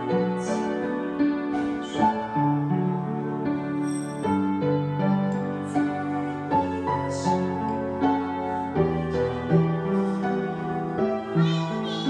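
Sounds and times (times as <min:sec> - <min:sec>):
slow piano piece: 0:00.0 - 0:12.0.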